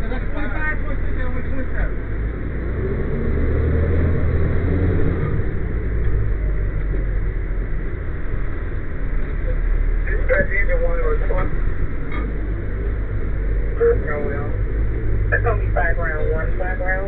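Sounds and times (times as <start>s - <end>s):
diesel engine low rumble: 0.0s - 17.0s.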